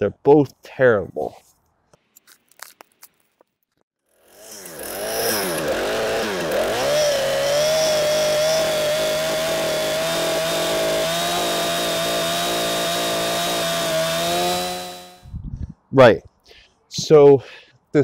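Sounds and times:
chainsaw running: 4.0s - 15.2s.

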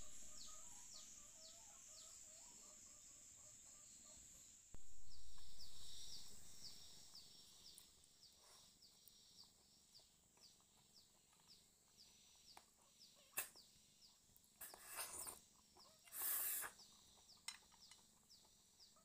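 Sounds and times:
low rumble: 4.8s - 7.3s.

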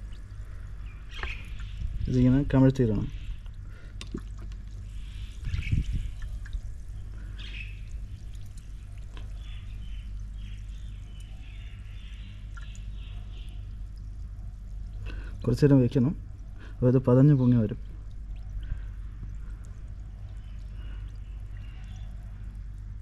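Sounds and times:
soda fizzing and bubbling: 3.4s - 16.5s.

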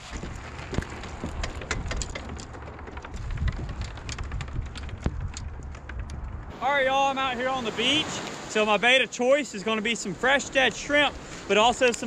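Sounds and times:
cart wheels rolling over wooden planks: 0.0s - 6.5s.

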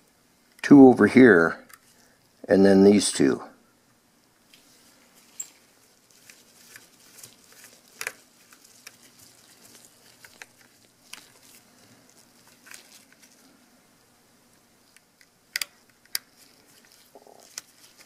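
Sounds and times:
plastic shell handling: 4.5s - 13.5s
small screwdriver clicks and taps: 15.0s - 16.2s.

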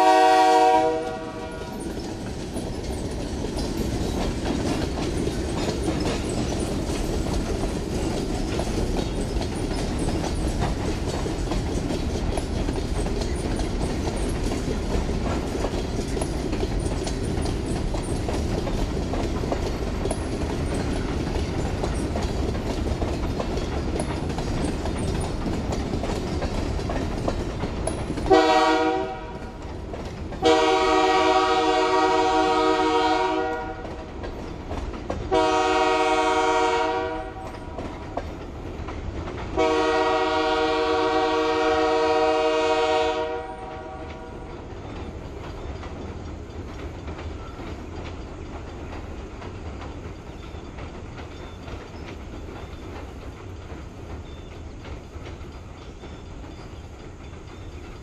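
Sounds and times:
locomotive air horn blasts: 0.0s - 1.8s, 28.3s - 29.5s, 30.4s - 33.9s, 35.3s - 37.5s, 39.6s - 44.3s
freight train rumbling: 0.0s - 58.0s
train wheel clatter: 0.0s - 58.0s.

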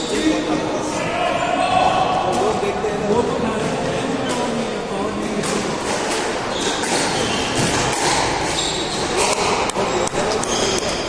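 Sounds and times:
squash ball hitting rackets and walls: 1.7s - 11.0s
shoes squeaking on wooden floor: 6.2s - 11.0s.

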